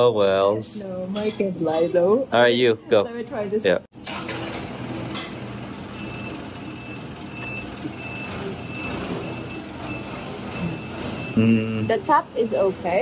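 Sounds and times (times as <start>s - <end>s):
vehicle reversing alarm beeping: 5.8s - 13.0s.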